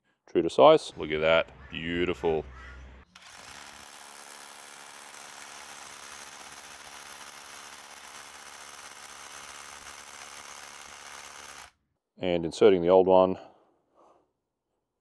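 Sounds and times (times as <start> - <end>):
rotary hammer drilling into concrete: 3.1 - 11.8.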